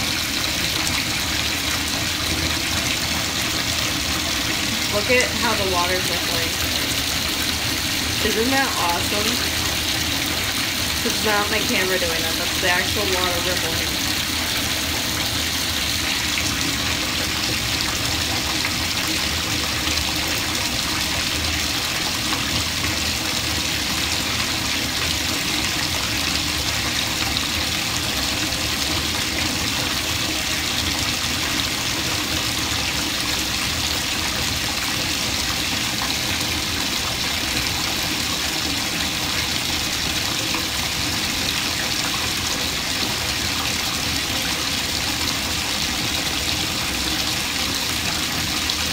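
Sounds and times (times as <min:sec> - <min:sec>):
bathtub tap running: 0:00.0 - 0:48.9.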